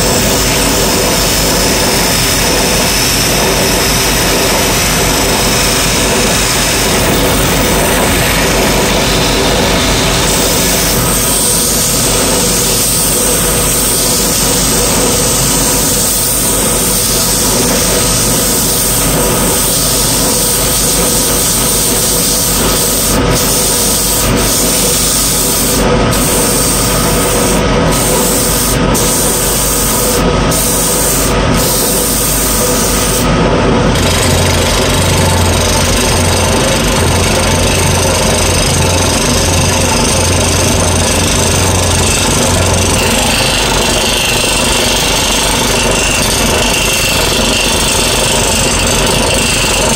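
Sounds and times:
hand sanding rubbing: 0:00.0 - 0:33.3
wood lathe motor hum: 0:00.0 - 0:49.9
chisel cutting wood: 0:33.9 - 0:49.9.

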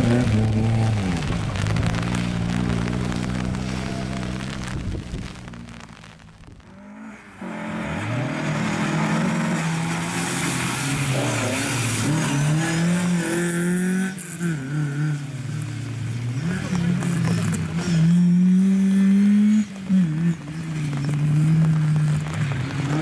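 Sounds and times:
rally car engine revving: 0:00.0 - 0:23.0.

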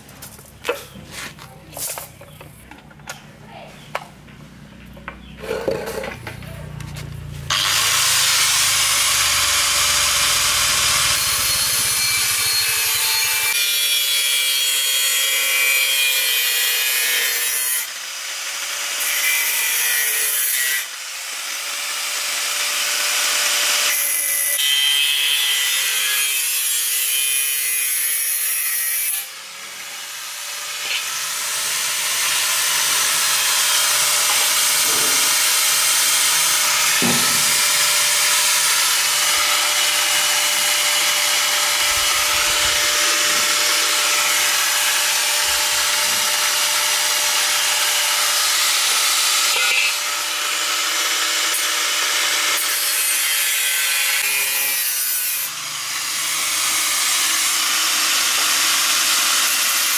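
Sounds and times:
angle grinder cutting steel: 0:07.3 - 0:59.9.

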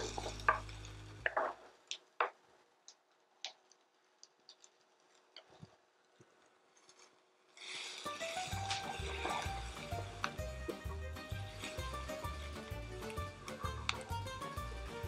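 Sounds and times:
background music: 0:00.0 - 0:01.3, 0:08.0 - 0:15.0.

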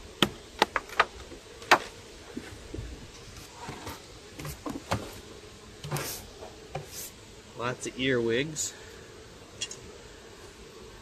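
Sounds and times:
hive tool working on wood: 0:00.0 - 0:11.0
hive parts clicking and knocking: 0:00.2 - 0:02.5.

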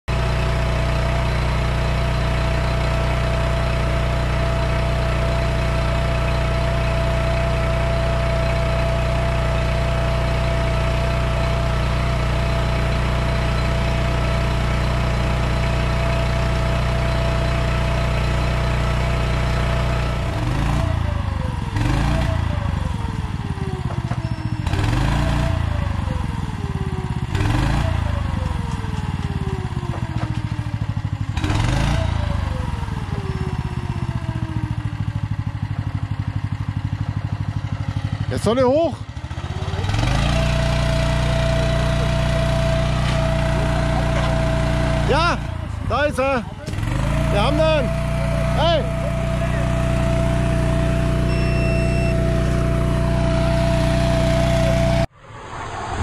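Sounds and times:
drone motors whining: 0:40.0 - 0:56.0.

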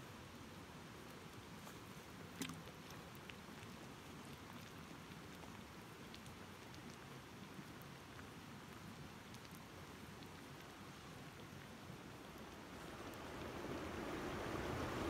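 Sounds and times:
faint steady hiss: 0:00.0 - 0:15.0
faint ticks: 0:01.1 - 0:11.5.

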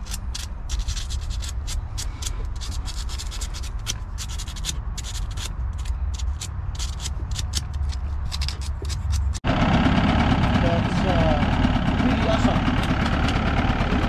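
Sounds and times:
sandpaper scratching metal: 0:00.0 - 0:09.4.

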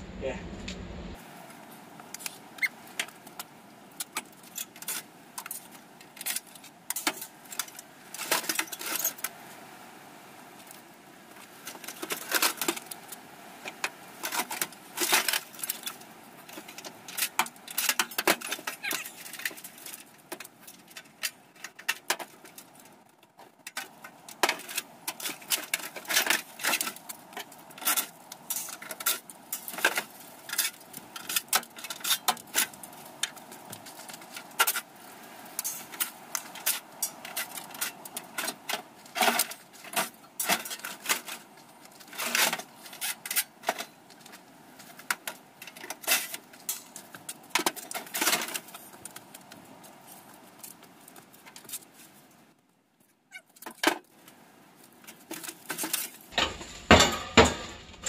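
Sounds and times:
sheet metal clanking and rattling: 0:56.3 - 0:58.0.

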